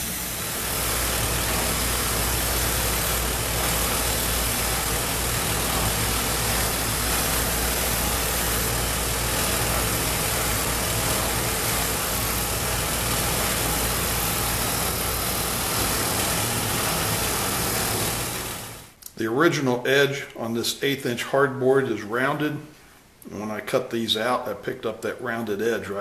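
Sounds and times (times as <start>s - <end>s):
disc sander motor hum: 0.0s - 18.9s
sanding hiss: 0.0s - 18.9s.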